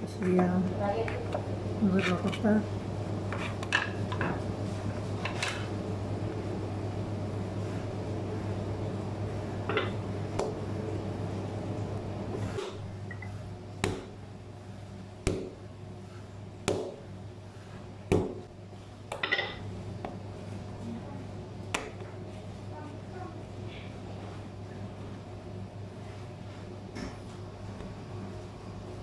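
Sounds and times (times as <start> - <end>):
rolling pin rumbling on dough: 7.4 - 23.1
dough knocking on table: 13.8 - 14.2, 15.2 - 15.6, 16.6 - 17.1, 18.0 - 18.5.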